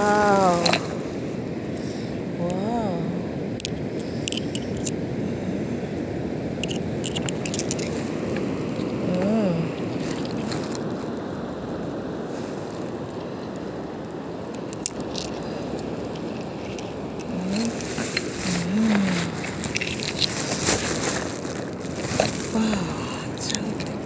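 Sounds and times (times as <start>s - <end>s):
waves on a sandy beach: 0.0s - 24.0s
wind noise: 0.0s - 24.0s.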